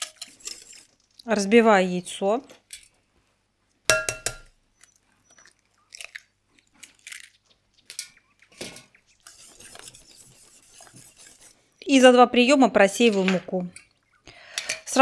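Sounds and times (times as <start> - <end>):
egg knocking on glass bowl: 3.9 - 4.5
eggshell crackling: 3.9 - 11.9
whisk swishing in bowl: 9.2 - 11.6.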